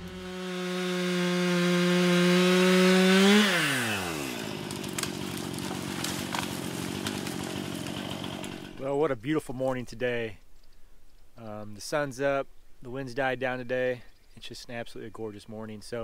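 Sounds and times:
chainsaw running: 0.0s - 8.8s.

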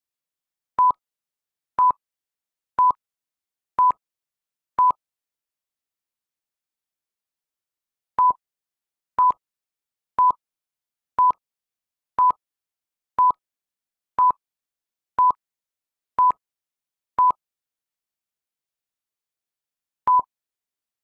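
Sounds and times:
electronic timer beeps: 0.8s - 1.0s, 1.8s - 2.0s, 2.8s - 3.0s, 8.2s - 8.4s, 9.2s - 9.4s, 10.2s - 10.4s, 11.2s - 11.4s, 12.2s - 12.4s, 13.2s - 13.4s, 15.2s - 15.4s, 16.2s - 16.4s, 17.2s - 17.4s.

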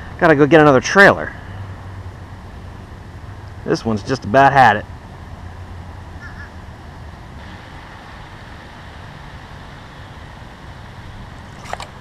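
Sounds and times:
even hiss: 7.4s - 12.0s.

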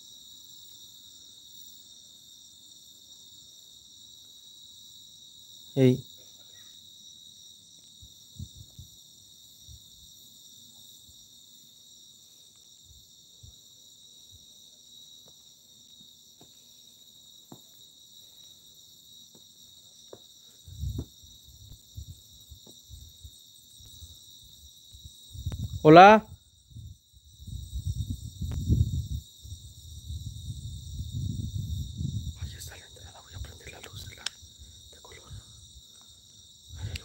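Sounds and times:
crickets trilling: 0.0s - 37.0s.

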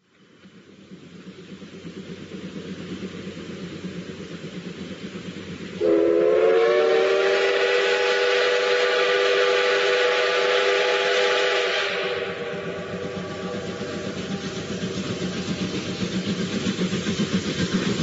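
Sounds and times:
train running rumble: 0.0s - 18.0s
steam locomotive whistle: 5.8s - 14.1s.

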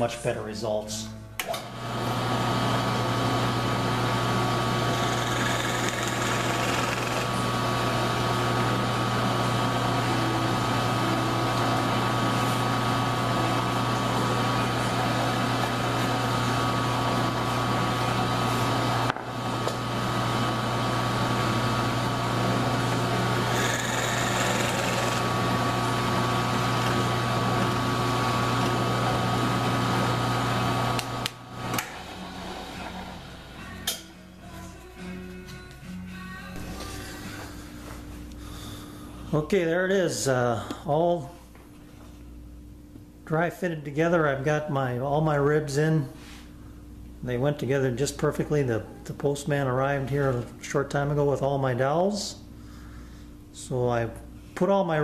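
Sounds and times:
drill press running: 1.4s - 34.0s.

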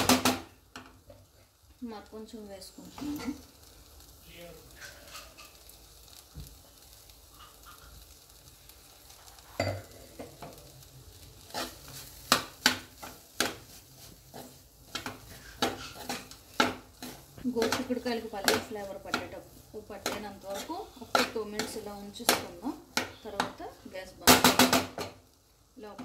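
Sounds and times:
faint sizzle from pan: 0.0s - 26.0s
metal spoon scraping a pan: 4.7s - 5.8s, 7.2s - 8.3s, 11.4s - 23.9s.

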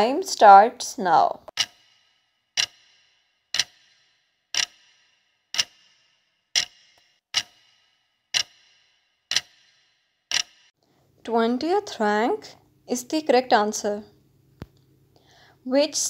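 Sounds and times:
clock ticks with bright ring: 1.5s - 10.8s.

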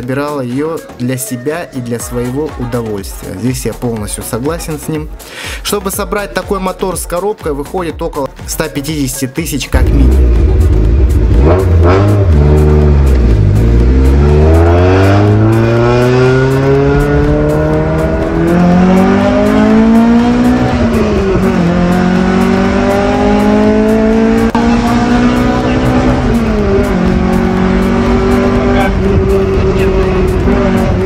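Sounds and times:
car engine accelerating hard: 9.8s - 31.0s.

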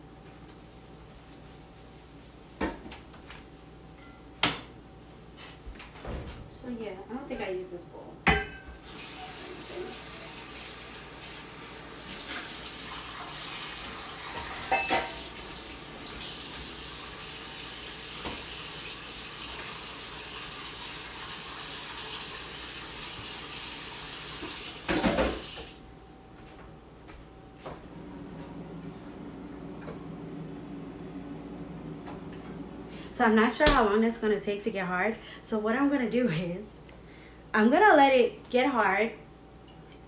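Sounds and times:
dishes clattering: 8.3s - 8.8s, 14.3s - 15.3s
faucet running into metal sink: 8.8s - 25.8s.

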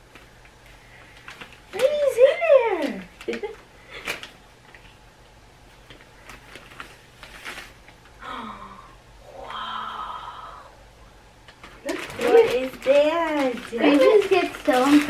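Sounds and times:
wrapping paper crinkling and tearing: 0.0s - 4.9s, 5.8s - 8.1s, 11.5s - 15.0s.

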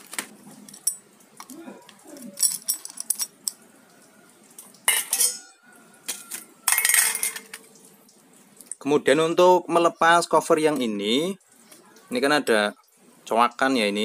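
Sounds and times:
small metal parts clinking: 0.6s - 3.6s, 6.2s - 7.6s
metallic clatter: 2.3s - 3.6s, 6.7s - 7.6s.

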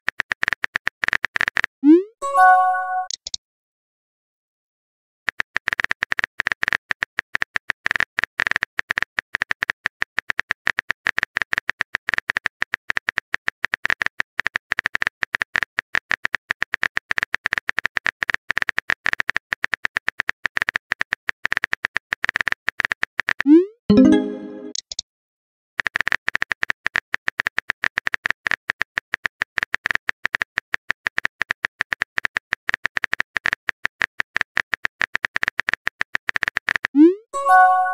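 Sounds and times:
keyboard typing clicks: 0.4s - 3.4s, 23.2s - 25.0s
message sent tone: 1.8s - 3.2s, 23.5s - 24.8s, 37.0s - 37.9s.

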